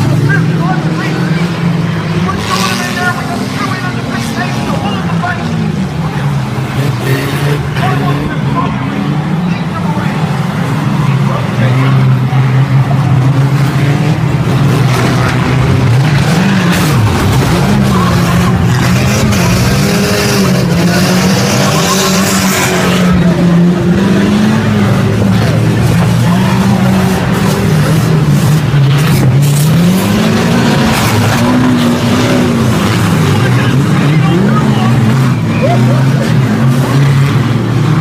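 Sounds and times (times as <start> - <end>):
car engines revving: 0.0 - 38.0
cars bumping together: 0.0 - 38.0.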